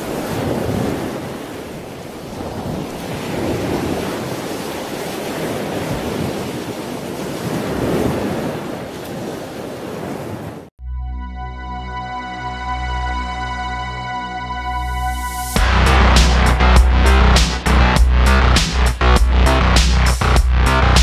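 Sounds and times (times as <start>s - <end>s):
ocean waves washing in: 0.0s - 10.7s
wind: 0.0s - 10.7s.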